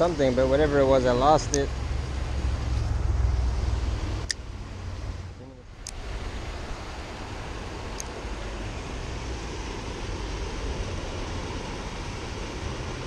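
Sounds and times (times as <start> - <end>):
creek rushing: 0.0 - 13.0.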